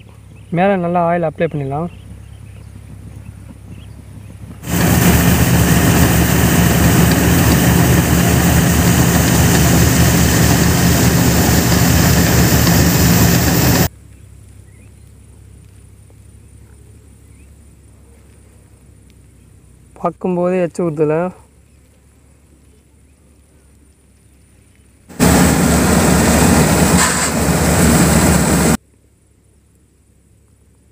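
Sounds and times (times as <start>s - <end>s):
faint outdoor background: 0.0s - 30.9s
farm machine engine running: 4.6s - 13.9s, 25.1s - 28.8s
grain pouring from spout: 4.6s - 13.9s.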